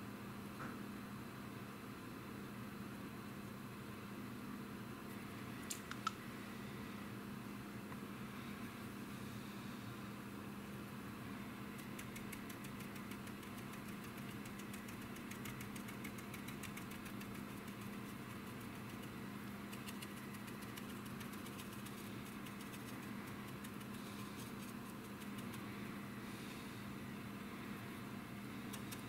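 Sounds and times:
low machine hum: 0:00.0 - 0:29.0
brush scrubbing plastic: 0:11.8 - 0:25.7.

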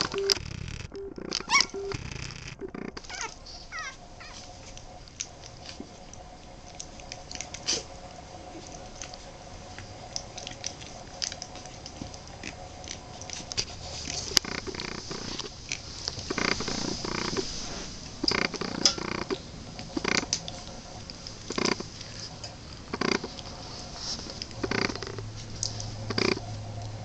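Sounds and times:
faint steady hum: 0:00.0 - 0:27.0
puppies squeaking and whimpering: 0:01.1 - 0:04.7
small clicks and smacks: 0:04.3 - 0:16.7.

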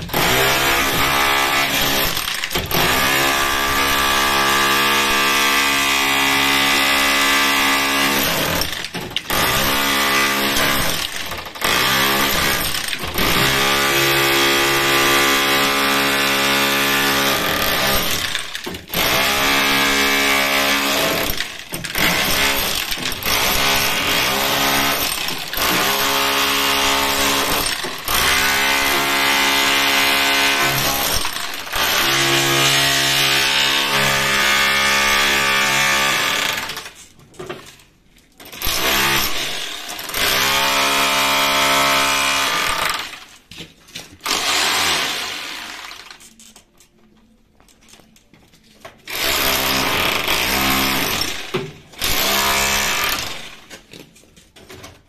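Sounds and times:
rotary hammer chipping concrete: 0:00.0 - 0:37.0, 0:38.4 - 0:43.3, 0:44.1 - 0:46.3, 0:49.1 - 0:53.9.

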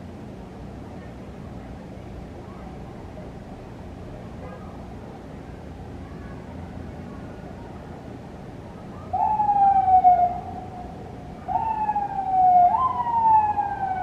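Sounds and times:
siren wailing: 0:09.1 - 0:14.0.

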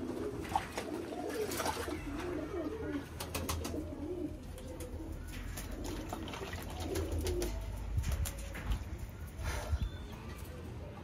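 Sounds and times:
pigeons cooing: 0:00.0 - 0:10.6
water splashing in bucket: 0:00.3 - 0:02.2, 0:05.6 - 0:07.4.

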